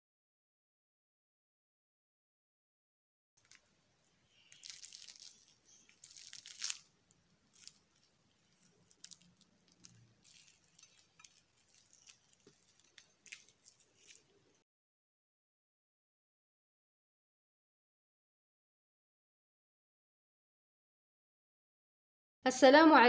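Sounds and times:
flatbread crust crackling: 3.4 - 14.6.

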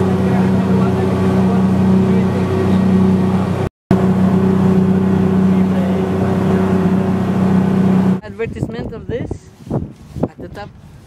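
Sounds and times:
speedboat engine drone: 0.0 - 8.2
wind and water rushing: 0.0 - 11.0.

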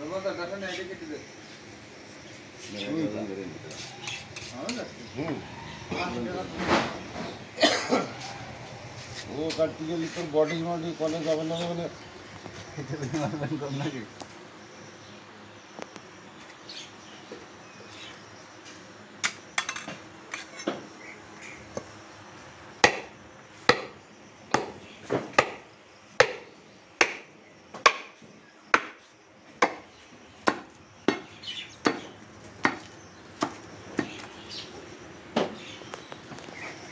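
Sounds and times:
cleaver chopping on wooden block: 22.8 - 23.1, 23.7 - 25.6, 26.2 - 28.1, 28.7 - 29.0, 29.6 - 34.3.

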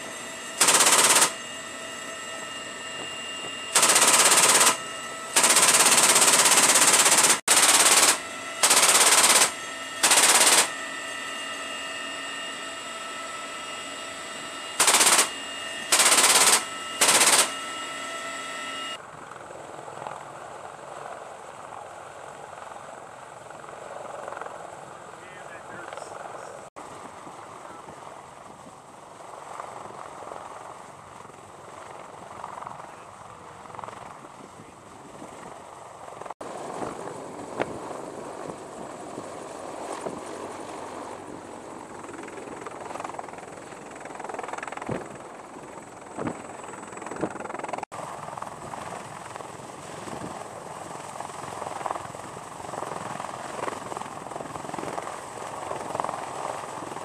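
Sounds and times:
helicopter rotors and engines: 0.0 - 57.0.

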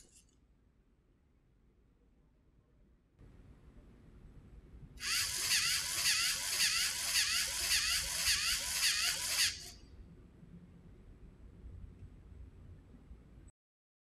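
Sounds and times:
pneumatic pump strokes: 5.0 - 9.7
servo motor whining: 5.0 - 9.7.

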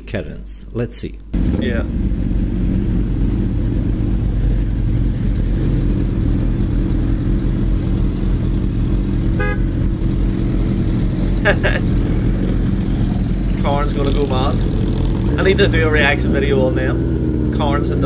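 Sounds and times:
motorcycle engine rumbling: 1.3 - 18.0
short horn toot: 9.4 - 9.8.

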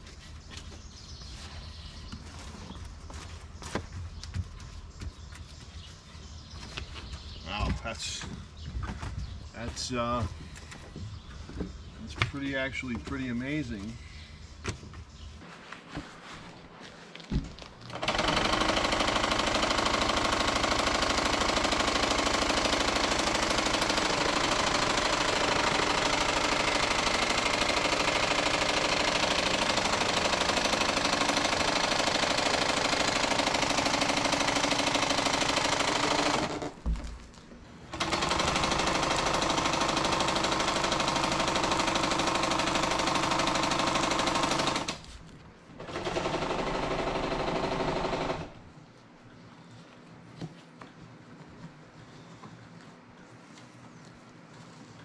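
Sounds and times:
electric sewing machine running: 17.9 - 36.7, 38.0 - 45.0.

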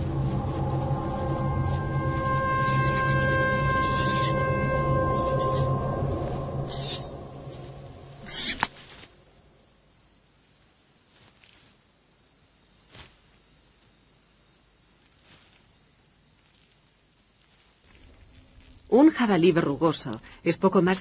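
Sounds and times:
rush of noise: 0.0 - 8.7
faint insect chirping: 0.0 - 21.0.

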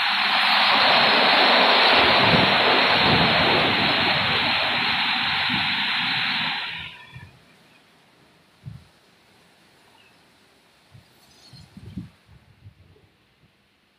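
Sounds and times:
water spray rushing: 0.0 - 7.3.

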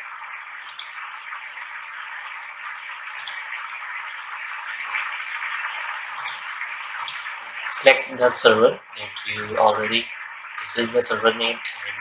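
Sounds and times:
steady background hiss: 0.0 - 12.0
faint click: 0.7 - 1.0.

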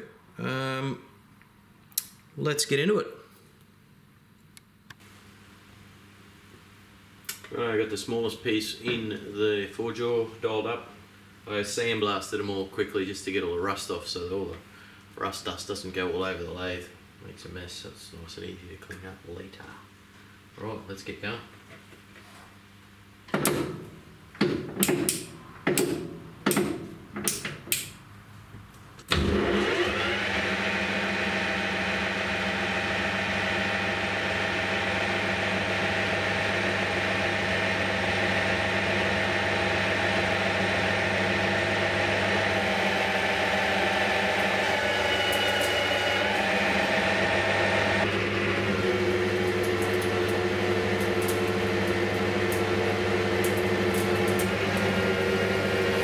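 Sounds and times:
lathe cutting steel: 29.2 - 56.0
metal lathe humming and whining: 29.3 - 56.0.

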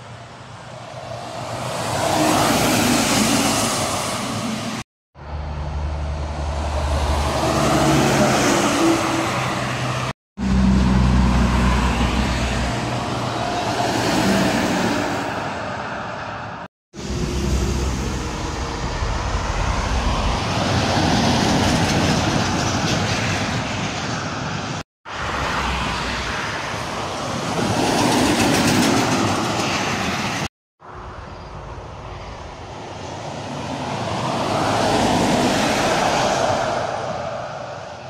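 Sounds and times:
trucks passing on highway: 0.0 - 38.0.

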